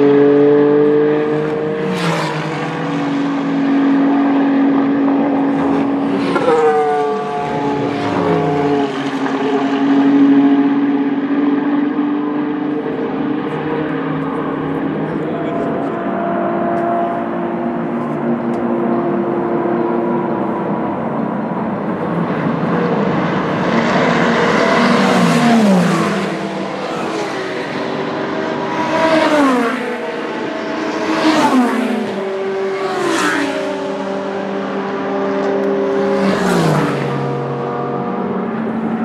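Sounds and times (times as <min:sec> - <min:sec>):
distant race car engines: 0:00.0 - 0:39.0
race cars passing at speed: 0:00.0 - 0:39.0.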